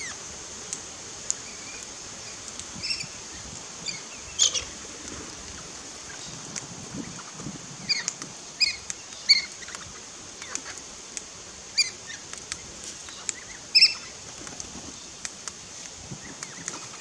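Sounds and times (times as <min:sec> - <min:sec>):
steady high hiss: 0:00.0 - 0:17.0
faint clicks: 0:00.7 - 0:02.8, 0:12.3 - 0:13.5
parrots calling: 0:03.8 - 0:04.8, 0:07.1 - 0:09.8, 0:13.1 - 0:14.1.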